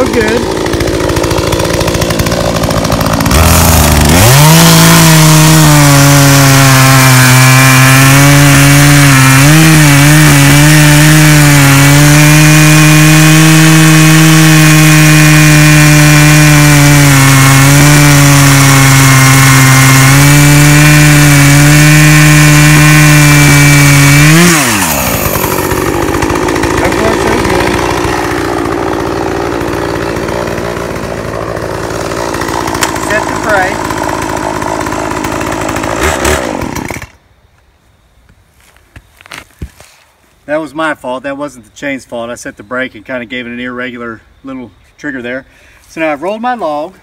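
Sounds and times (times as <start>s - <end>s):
chainsaw cutting log: 0.0s - 37.2s.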